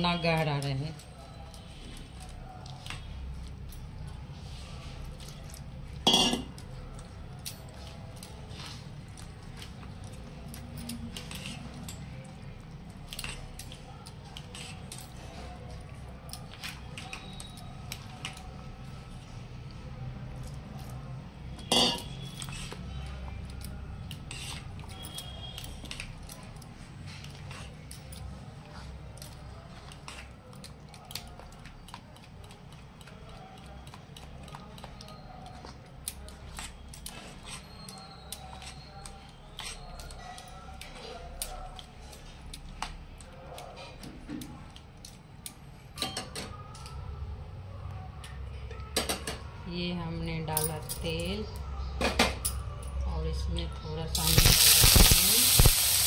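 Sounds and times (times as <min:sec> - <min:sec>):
metallic clinks against bowl: 0:06.0 - 0:06.6, 0:21.6 - 0:22.2
ladle scraping batter in bowl: 0:21.6 - 0:23.0, 0:24.2 - 0:26.0.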